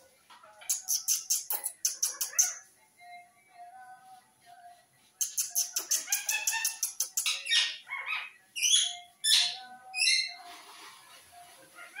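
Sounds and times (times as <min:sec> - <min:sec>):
parakeet chirps and squawks: 0:00.6 - 0:02.7, 0:05.2 - 0:10.4.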